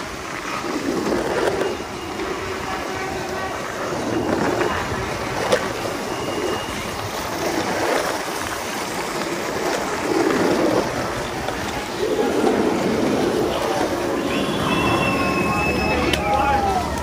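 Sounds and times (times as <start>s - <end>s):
longboard wheels rolling on asphalt: 0.0s - 17.0s.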